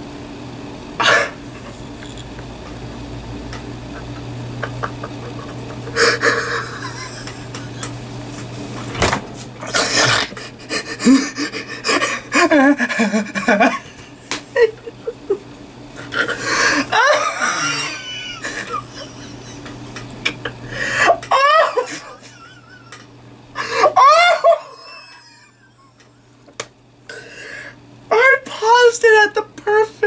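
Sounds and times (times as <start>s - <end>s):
man laughing uncontrollably: 3.7s - 8.0s, 9.8s - 15.4s, 16.1s - 26.0s.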